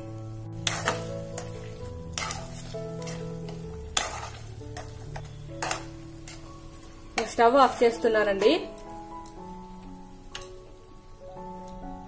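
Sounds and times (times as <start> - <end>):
background music with held notes: 0.0 - 12.0
food frying softly in ghee: 0.0 - 12.0
spatula scraping a pan: 0.6 - 8.9.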